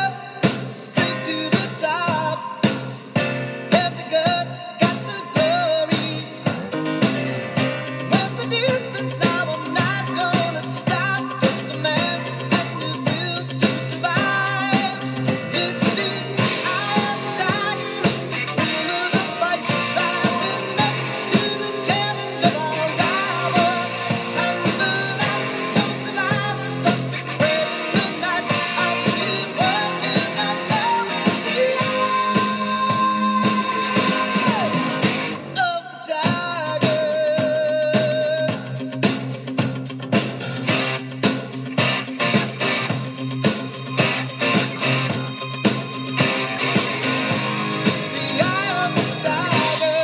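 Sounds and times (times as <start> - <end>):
rock music with singing: 0.0 - 50.0.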